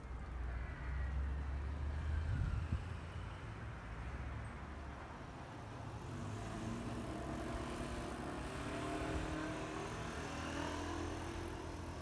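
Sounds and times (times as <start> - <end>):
low traffic rumble: 0.0 - 12.0
vehicle engine approaching: 6.0 - 12.0.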